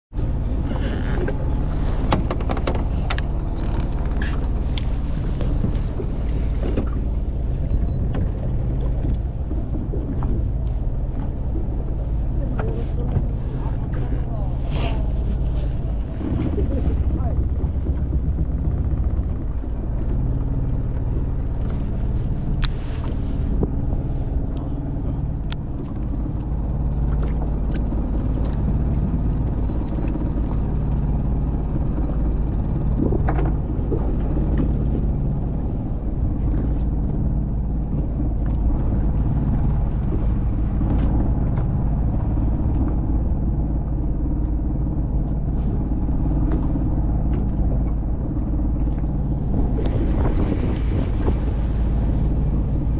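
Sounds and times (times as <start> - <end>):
boat engine droning: 0.1 - 52.9.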